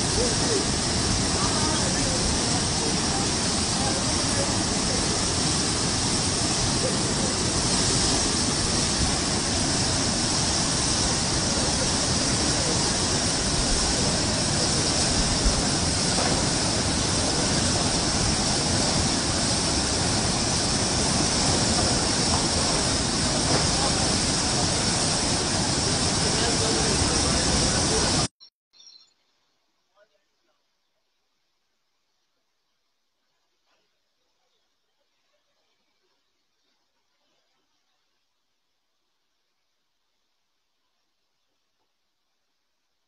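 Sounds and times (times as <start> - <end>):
floodwater rushing and churning: 0.0 - 28.3.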